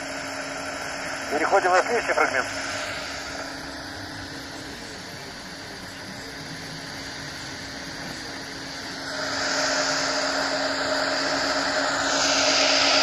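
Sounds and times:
faint steady hum: 0:00.0 - 0:13.0
radio static hiss: 0:01.2 - 0:10.6.

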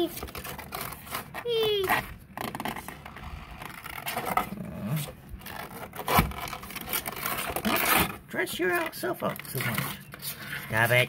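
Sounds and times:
turtle scratching on cardboard: 0:00.0 - 0:08.2.

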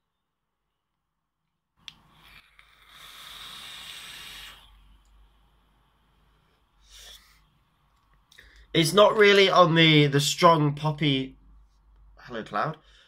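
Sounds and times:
air hissing through coil: 0:02.0 - 0:07.8.

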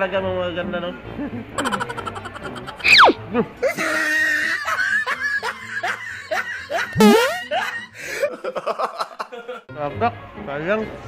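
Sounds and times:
person snickering laughter: 0:01.6 - 0:02.9.

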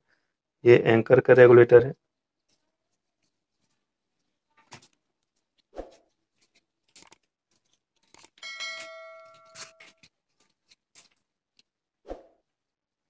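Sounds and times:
bell-like notification chime: 0:08.4 - 0:09.9
cardboard packaging rustling: 0:09.4 - 0:11.6.

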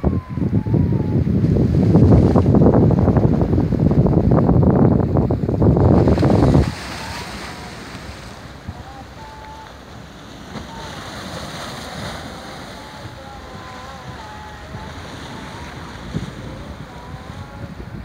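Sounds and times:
sea and wind hiss: 0:00.0 - 0:18.0
wind buffeting microphone: 0:00.0 - 0:18.0
water lapping: 0:05.2 - 0:18.0.

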